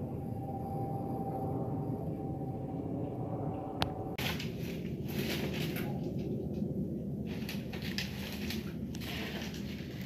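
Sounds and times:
jet airliner rumbling overhead: 0.0 - 10.0.

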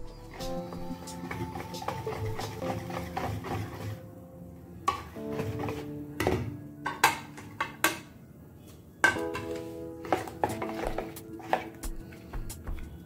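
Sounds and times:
background music: 0.0 - 13.0.

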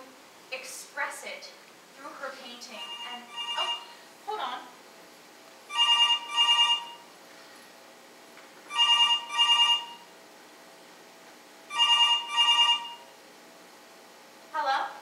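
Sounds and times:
mobile phone ringing: 2.8 - 4.0, 5.7 - 7.1, 8.7 - 10.1, 11.7 - 13.1.

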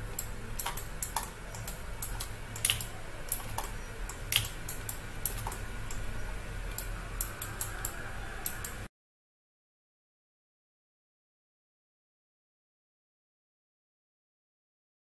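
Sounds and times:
faint low hum: 0.0 - 8.9
mouse and keyboard clicks: 0.1 - 6.0.

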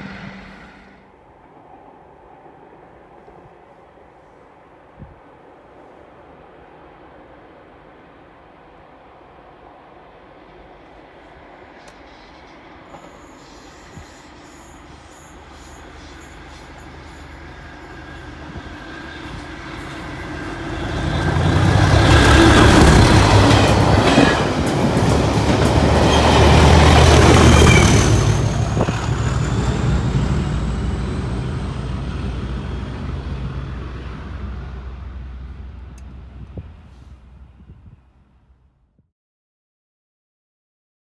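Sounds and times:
train wheels on rails: 0.0 - 1.2, 10.1 - 37.4
diesel locomotive engine: 0.0 - 38.6.

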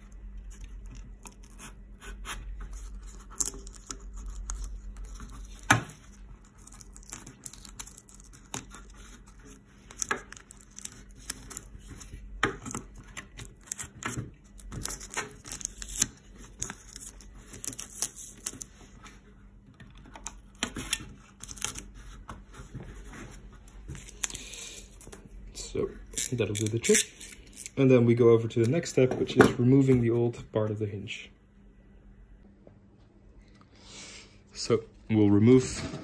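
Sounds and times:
tape tearing and crackling: 2.9 - 18.7, 20.8 - 21.9, 26.1 - 27.8.

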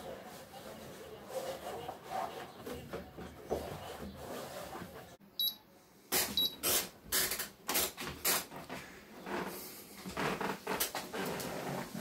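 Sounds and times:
treadmill console beeps: 5.4 - 5.6, 6.4 - 6.6.

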